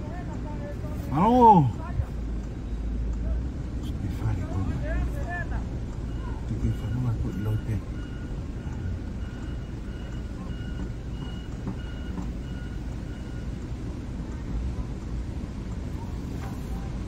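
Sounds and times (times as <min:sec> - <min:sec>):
road and engine rumble: 0:00.0 - 0:17.0
faint high beep: 0:06.0 - 0:13.6.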